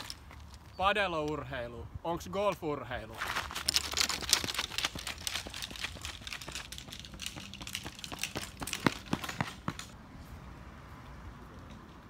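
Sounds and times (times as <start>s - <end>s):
footsteps on pavement: 2.5s - 10.0s.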